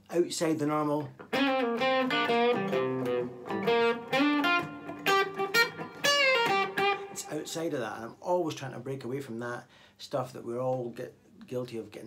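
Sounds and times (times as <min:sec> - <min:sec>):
electric guitar blues lick: 0:01.0 - 0:07.4.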